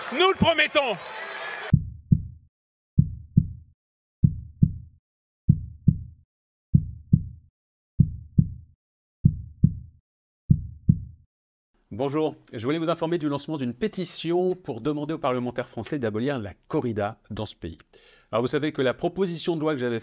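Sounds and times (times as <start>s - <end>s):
heartbeat thumps: 1.8s - 2.4s, 3.0s - 3.6s, 4.2s - 4.9s, 5.5s - 7.4s, 8.0s - 9.9s, 10.5s - 11.2s.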